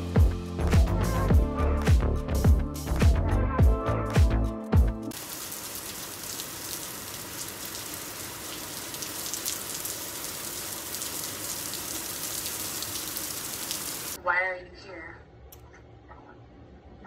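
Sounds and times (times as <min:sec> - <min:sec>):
music: 0:00.0 - 0:05.2.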